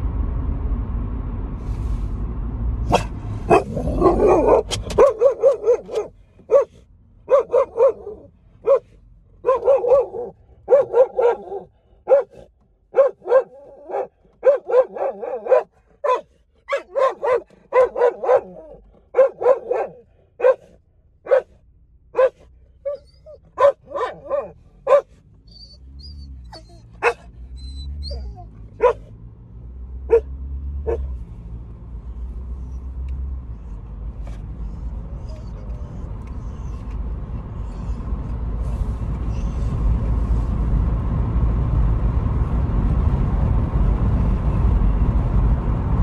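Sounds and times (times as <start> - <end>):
low car rumble: 0.0 - 46.0
dog barking: 2.9 - 25.2, 26.5 - 27.3, 28.1 - 29.1, 30.1 - 31.2.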